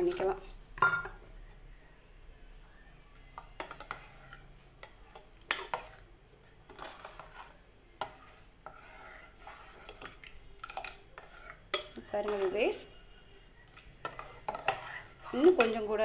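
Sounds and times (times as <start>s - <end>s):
metal ladle scraping metal pot: 3.6s - 6.0s, 6.6s - 12.9s, 13.8s - 16.0s.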